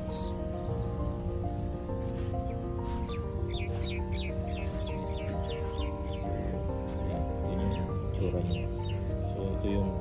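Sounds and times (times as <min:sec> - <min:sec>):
background music of held notes: 0:00.0 - 0:10.0
high falling chirps: 0:02.3 - 0:09.2.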